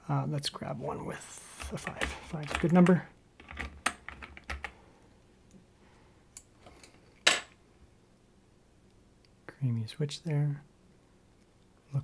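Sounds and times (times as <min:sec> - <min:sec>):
keycaps clicking and rattling: 0:01.6 - 0:04.8.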